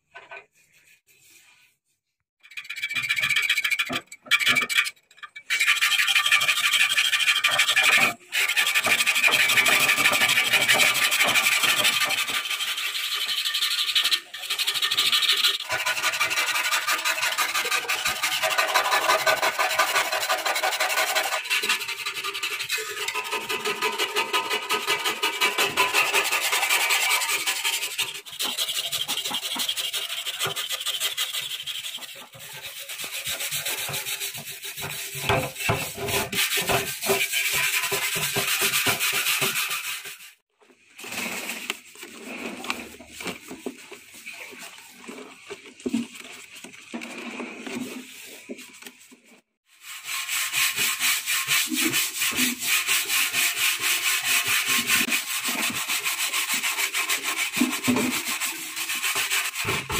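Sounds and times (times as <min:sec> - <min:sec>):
scouring pad scrubbing metal: 0:05.5 - 0:40.4, 0:41.2 - 0:49.1, 0:49.7 - 0:59.9
scraper rasping on metal paint: 0:05.5 - 0:40.4, 0:49.6 - 0:59.9.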